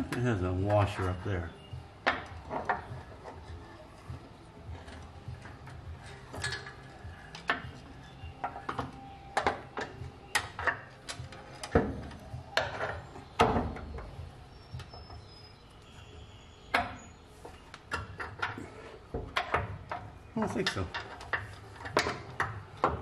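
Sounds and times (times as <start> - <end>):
metal parts clicking and clinking: 4.8 - 14.1, 17.7 - 23.0.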